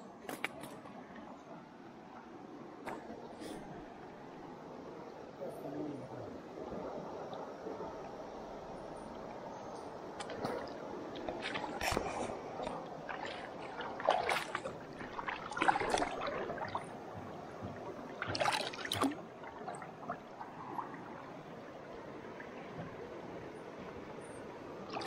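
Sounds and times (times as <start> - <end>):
water sloshing and splashing: 0.2 - 4.2, 8.7 - 25.0
stream rushing: 6.0 - 25.0.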